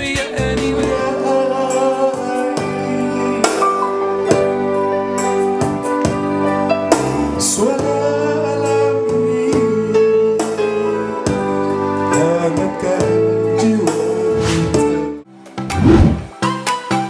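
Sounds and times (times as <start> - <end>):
man singing into a microphone: 0.0 - 4.3, 7.3 - 11.0, 12.0 - 15.2
keyboard accompaniment: 0.0 - 17.0.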